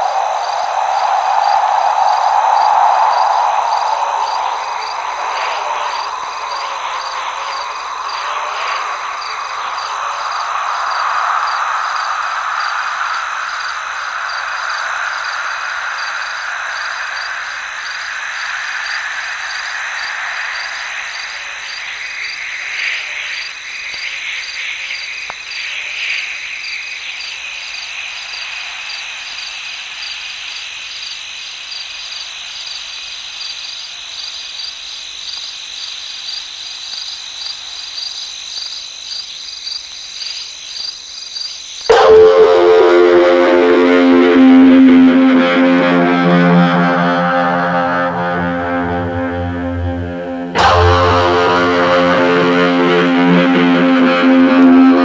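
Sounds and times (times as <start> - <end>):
high rapidly pulsing chirr: 0.0 - 25.1, 41.9 - 55.0
broad wash of sound: 0.0 - 25.2, 41.9 - 48.5.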